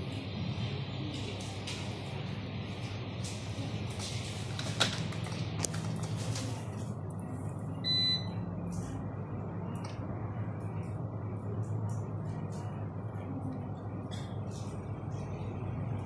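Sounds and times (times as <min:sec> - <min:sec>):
steady low hum: 0:00.0 - 0:16.0
ultrasound scanner beep: 0:07.8 - 0:08.4.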